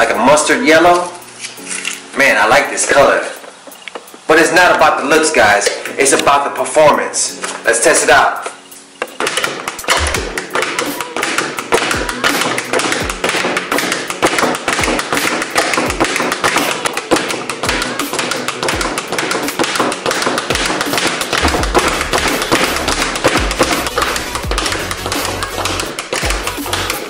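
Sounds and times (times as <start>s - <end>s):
speed bag rapid punching: 9.2s - 27.0s.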